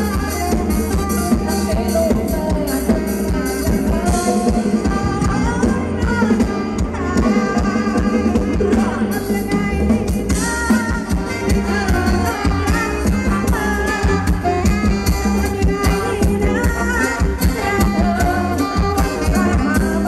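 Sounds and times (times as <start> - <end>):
bass: 0.0 - 20.0
bending melody line: 0.0 - 20.0
drum kit beat: 0.0 - 20.0.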